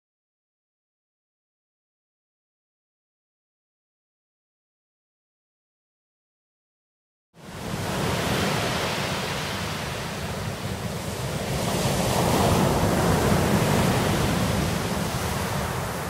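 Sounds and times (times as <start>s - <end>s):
waves on pebble beach: 7.4s - 16.0s.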